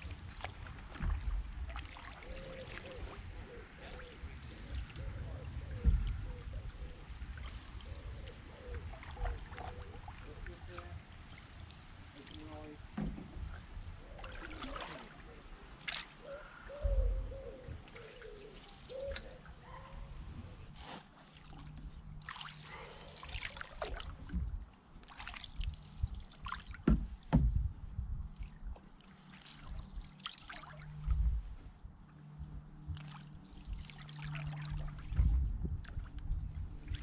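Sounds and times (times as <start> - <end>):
paddle splashing in water: 0.0 - 16.3, 17.7 - 31.7, 32.8 - 37.0
water trickling off paddle: 0.0 - 16.6, 17.7 - 20.0, 20.7 - 37.0
low thumps: 26.8 - 28.2.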